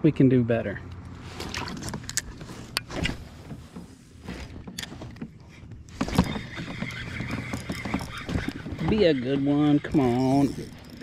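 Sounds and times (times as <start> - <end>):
knocks and clicks of fishing gear: 1.0 - 9.0.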